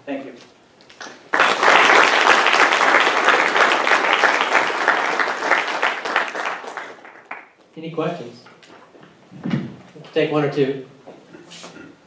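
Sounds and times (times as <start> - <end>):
audience applauding: 1.0 - 7.6.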